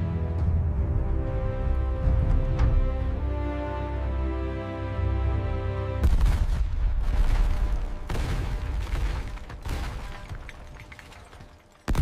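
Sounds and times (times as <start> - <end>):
masonry collapsing and rubble tumbling: 7.0 - 12.0.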